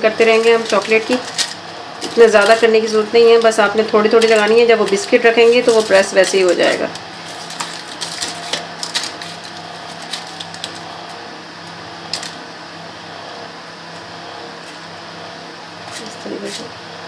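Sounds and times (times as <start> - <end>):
plastic lining rustling: 0.0 - 11.2
steady low hum: 0.0 - 17.0.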